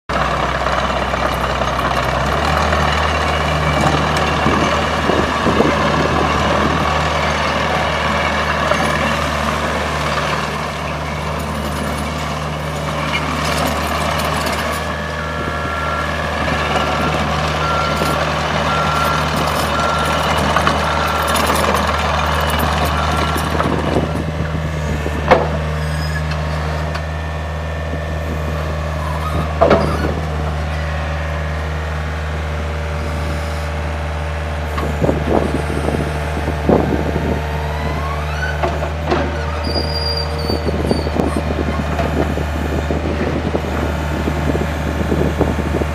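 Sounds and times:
diesel engine running: 0.1s - 45.9s
hydraulic squeaks and knocks: 25.2s - 27.0s, 29.0s - 30.8s, 36.7s - 42.4s.

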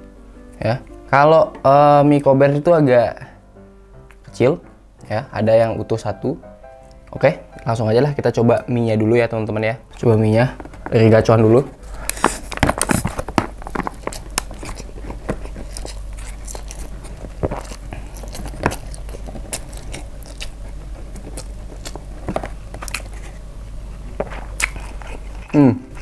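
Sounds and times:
wet chewing and smacking: 12.0s - 26.0s.

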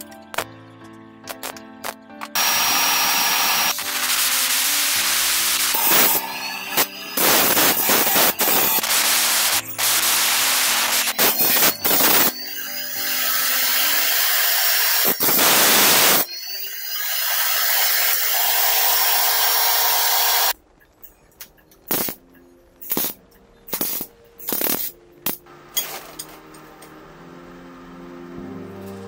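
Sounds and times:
soft background music: 0.0s - 16.9s, 20.5s - 29.0s
cut-off saw grinding steel pipe: 2.4s - 20.5s.

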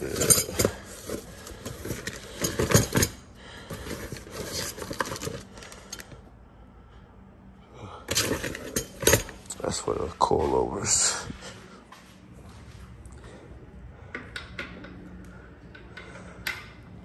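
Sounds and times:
objects rattling and knocking: 0.0s - 6.2s, 8.1s - 9.6s.

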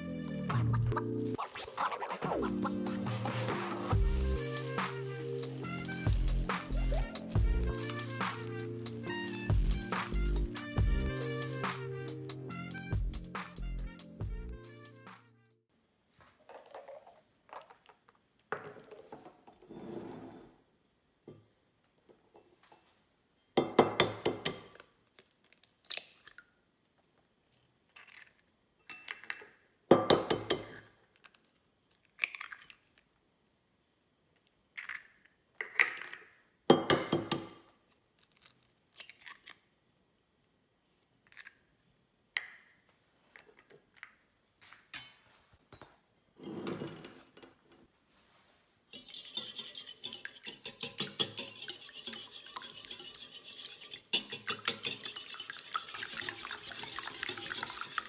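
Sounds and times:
eggshells cracking: 1.3s - 10.6s, 31.1s - 33.2s, 38.2s - 39.7s
whisk beating in glass bowl: 3.5s - 10.5s, 48.9s - 58.0s.

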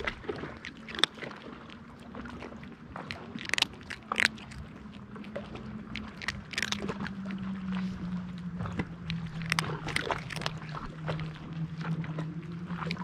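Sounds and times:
cat crunching dry kibble: 0.0s - 1.5s, 2.4s - 8.0s, 8.6s - 10.9s
low engine drone: 0.0s - 13.0s.

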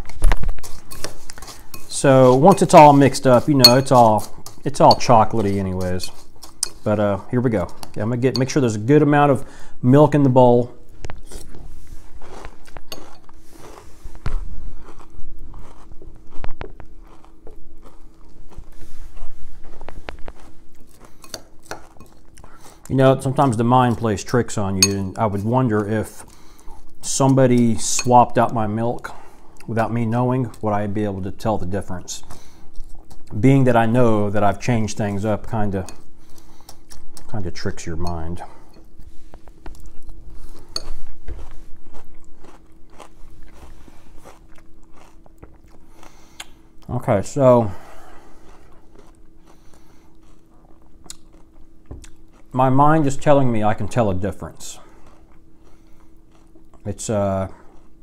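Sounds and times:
wet cereal crunching: 11.1s - 26.2s, 39.6s - 58.0s.

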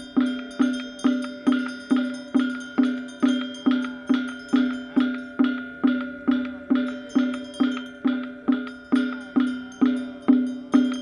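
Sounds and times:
hollow pitched percussion knocks: 0.0s - 11.0s.

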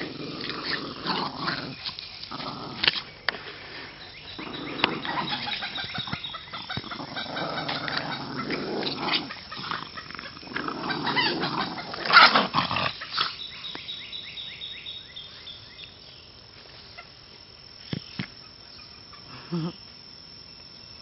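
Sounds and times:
dogs growling: 0.0s - 13.4s
faint high chirping: 3.0s - 12.3s.

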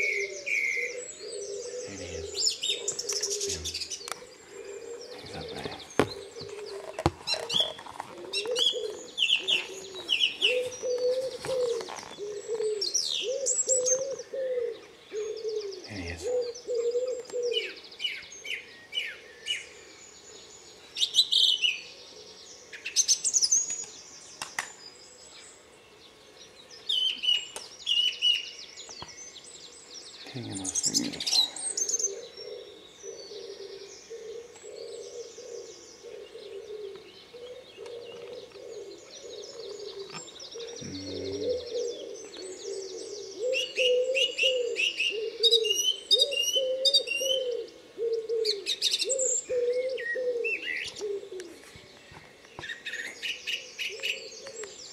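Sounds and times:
pigeon cooing: 0.0s - 17.8s, 30.3s - 51.7s, 53.5s - 54.8s
nightingale singing: 0.0s - 54.9s.

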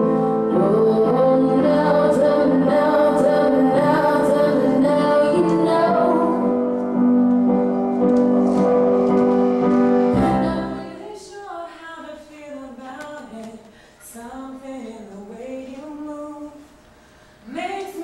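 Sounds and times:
woman singing: 0.0s - 6.7s, 10.2s - 16.8s, 17.4s - 18.0s
slow music with held notes: 0.0s - 11.0s.

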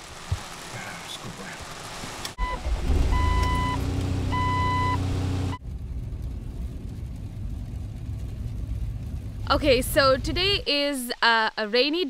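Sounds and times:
car engine running: 0.0s - 10.6s
rumble of car driving: 0.0s - 10.7s
dashboard warning chime beeping: 2.4s - 5.0s.

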